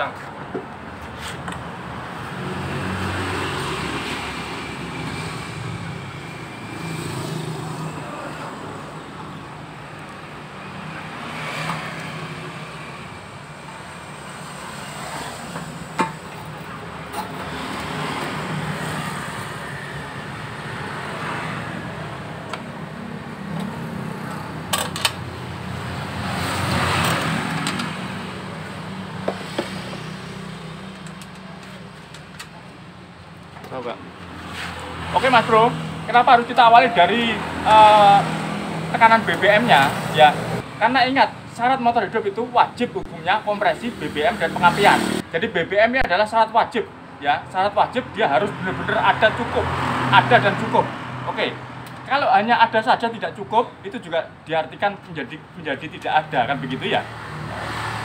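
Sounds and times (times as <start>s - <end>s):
vehicle engines rumbling: 0.0s - 58.0s
sharp clicks of parts handled: 27.0s - 28.0s, 30.9s - 32.6s.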